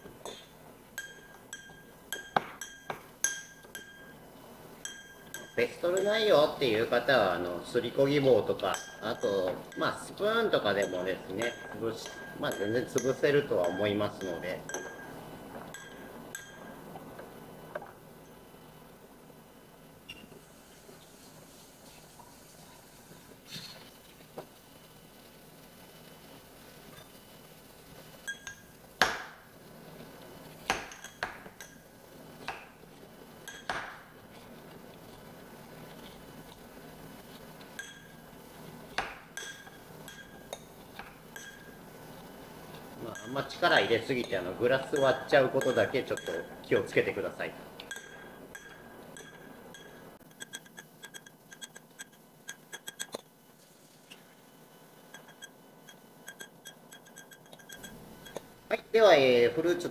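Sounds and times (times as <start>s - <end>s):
glass ringing: 1.0s - 6.2s, 8.6s - 16.9s, 28.2s - 28.8s, 30.7s - 31.9s, 33.4s - 34.1s, 37.8s - 38.2s, 39.3s - 41.8s, 43.1s - 47.1s, 47.8s - 53.2s, 55.1s - 58.5s
muddler clinking in glass: 10.7s - 16.7s, 28.3s - 28.7s, 33.5s - 33.8s, 39.4s - 40.7s, 41.3s - 41.8s, 44.2s - 47.0s, 47.8s - 53.2s, 55.1s - 58.5s.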